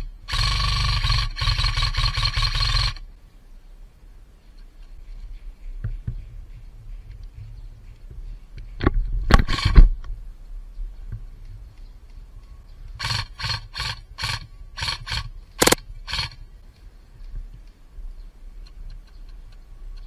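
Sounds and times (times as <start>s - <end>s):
airsoft rifle shots: 13.0s - 16.4s.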